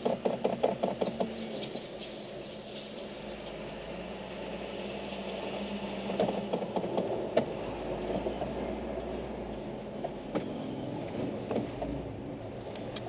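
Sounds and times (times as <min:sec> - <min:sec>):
clattering knocks and rattles: 0:00.0 - 0:01.8, 0:06.1 - 0:08.5
car engine and tyre rumble: 0:00.0 - 0:13.0.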